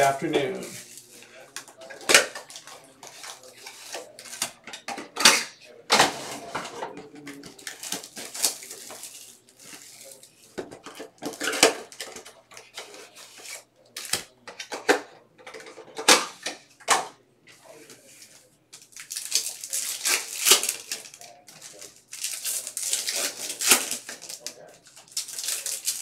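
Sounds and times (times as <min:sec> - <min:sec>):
foil packs crinkling: 0:07.2 - 0:10.6, 0:18.0 - 0:26.0.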